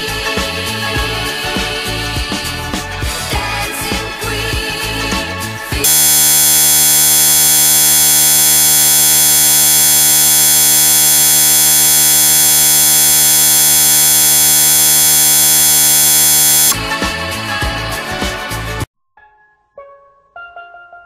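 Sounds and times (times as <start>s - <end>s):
music: 0.0s - 5.9s, 16.8s - 21.0s
loud electronic buzz: 5.8s - 16.8s.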